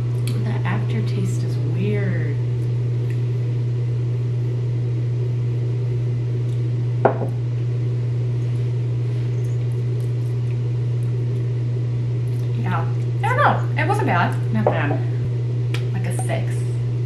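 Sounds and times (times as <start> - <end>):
loud steady low hum: 0.0 - 17.0
short knock: 7.1 - 7.3.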